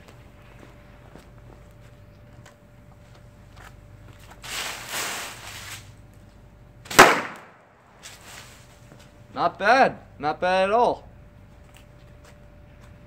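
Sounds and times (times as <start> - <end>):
firecracker fuse hissing: 4.3 - 6.0, 6.9 - 8.9
firecracker bang: 4.5 - 5.8, 6.9 - 7.8.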